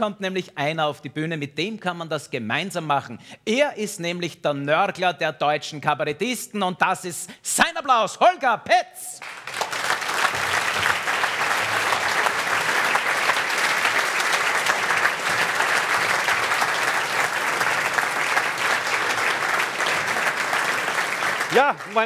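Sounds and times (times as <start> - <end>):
audience applauding: 9.2 - 22.0.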